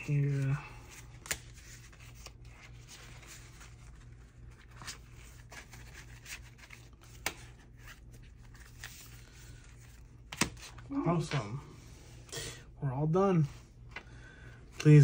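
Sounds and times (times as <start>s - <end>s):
banknotes and plastic rustling: 0.0s - 11.3s.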